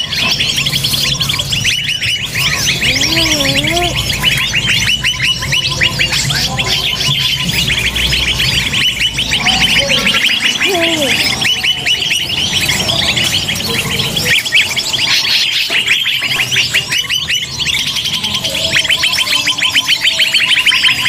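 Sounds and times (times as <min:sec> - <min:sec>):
small birds chirping: 0:00.0 - 0:21.0
low bending bird whistles: 0:01.1 - 0:13.5.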